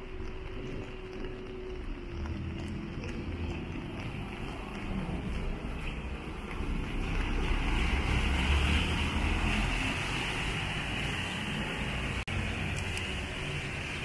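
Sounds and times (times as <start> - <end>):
engine rumble: 0.0 - 14.0
tyres hissing on wet asphalt: 3.5 - 14.0.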